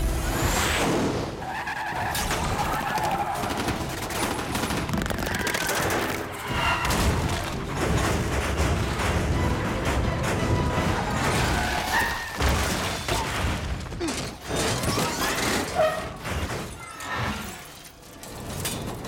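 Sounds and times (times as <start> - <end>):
background music: 0.0 - 12.7
crashing metal: 5.8 - 19.0.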